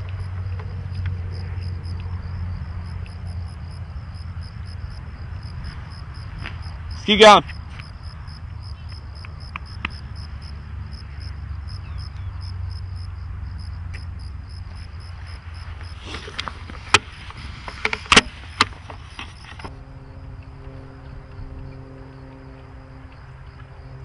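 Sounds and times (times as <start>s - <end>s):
insect chirping: 0.0s - 24.0s.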